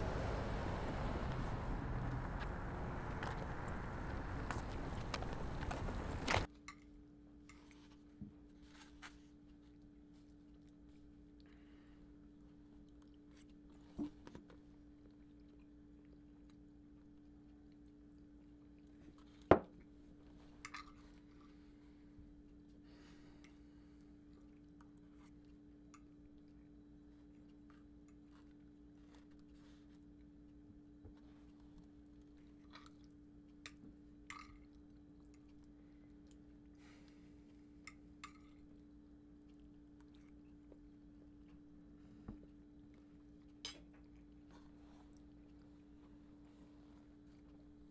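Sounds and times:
steady hum: 0.0s - 6.5s
low room hum: 0.0s - 47.9s
quiet chewing: 0.0s - 47.9s.

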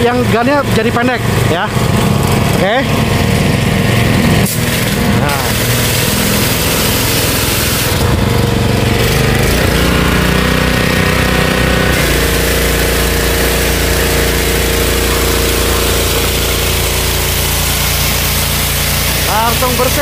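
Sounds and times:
pressure washer engine running: 0.0s - 20.0s
water spraying from gun: 4.4s - 8.1s, 12.0s - 20.0s.

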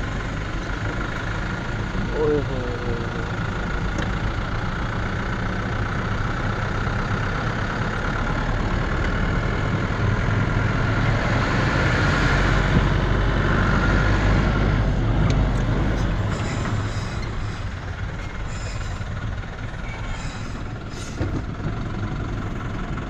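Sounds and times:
vehicle engine rumbling: 0.0s - 23.0s.

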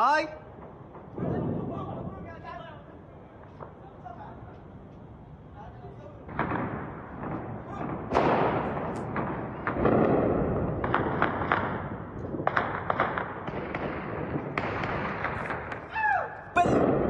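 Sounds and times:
sharp gunshots: 6.2s - 15.9s, 16.6s - 17.0s
gunfire bursts: 6.3s - 15.9s.

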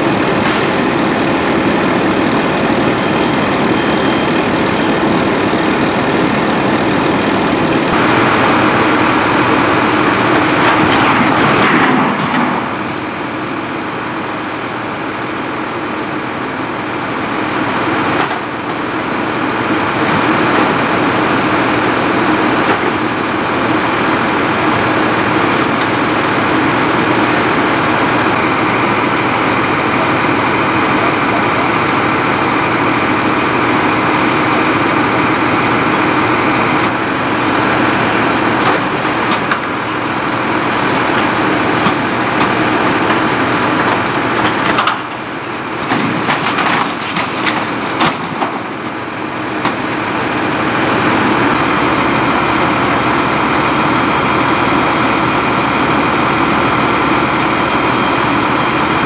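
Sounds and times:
diesel engines at high idle: 0.0s - 59.0s.

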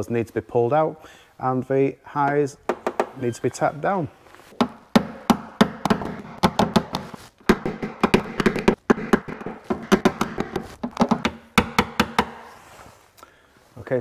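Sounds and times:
hammer tapping on metal panel: 4.6s - 12.4s.

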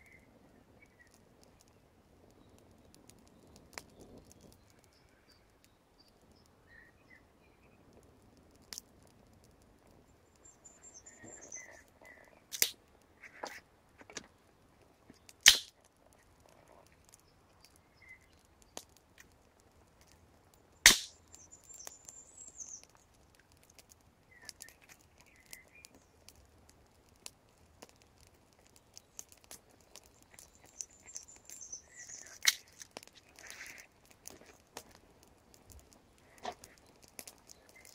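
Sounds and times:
fire crackling: 0.0s - 37.9s
fire popping: 0.0s - 37.9s
birds chirping: 10.0s - 12.5s, 17.1s - 18.8s, 20.6s - 23.1s, 24.2s - 26.3s, 27.9s - 34.6s, 35.9s - 37.9s.

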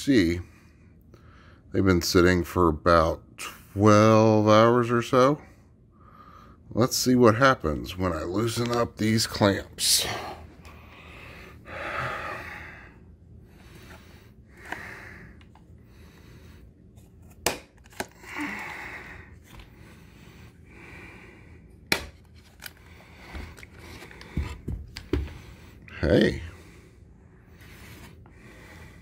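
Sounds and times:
heavy breathing: 5.4s - 6.7s, 9.8s - 17.0s, 18.1s - 21.9s, 22.6s - 29.0s.

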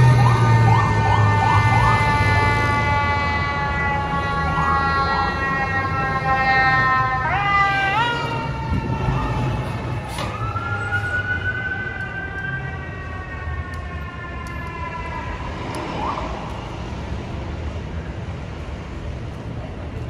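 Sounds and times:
low rumble of traffic: 0.0s - 20.0s
fire truck siren winding: 8.6s - 15.9s.

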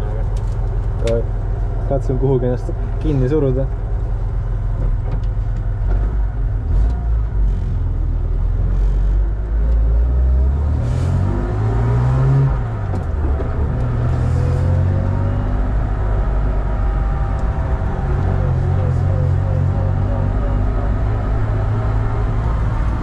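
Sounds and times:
race car engine revving: 9.8s - 23.0s.

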